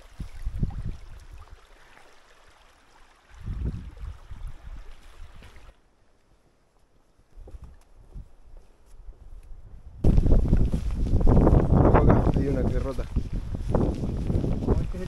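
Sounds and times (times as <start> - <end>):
wind buffeting microphone: 0.0 - 1.5, 3.3 - 5.7, 7.4 - 15.0.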